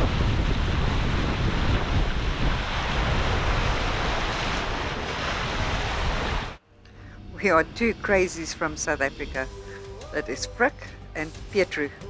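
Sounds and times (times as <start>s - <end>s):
water rushing along hull: 0.0s - 6.6s
wind buffeting microphone: 0.0s - 6.6s.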